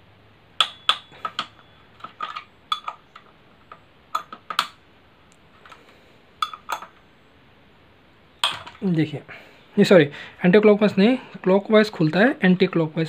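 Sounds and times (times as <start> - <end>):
sharp metallic clicks and clinks: 0.6 - 3.3, 6.4 - 7.0.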